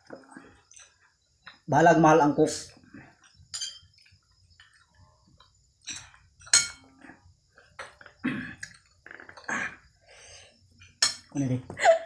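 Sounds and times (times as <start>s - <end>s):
person eating with clicks and smacks: 0.0s - 1.7s, 3.1s - 10.0s.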